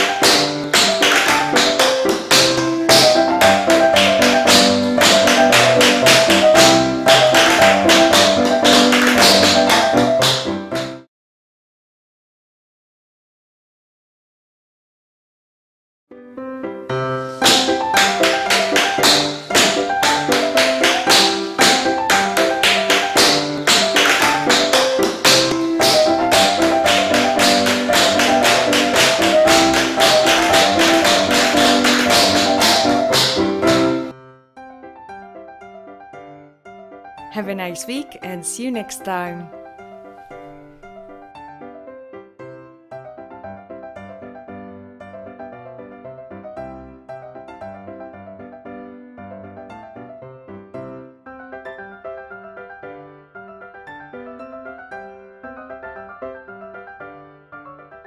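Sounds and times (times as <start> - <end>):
tap shoes on wooden floor: 0.0 - 10.9, 17.4 - 33.9.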